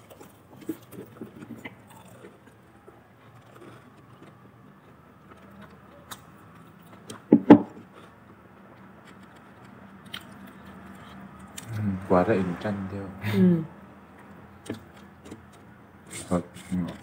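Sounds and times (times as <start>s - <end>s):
eating fried chicken: 0.0s - 12.0s.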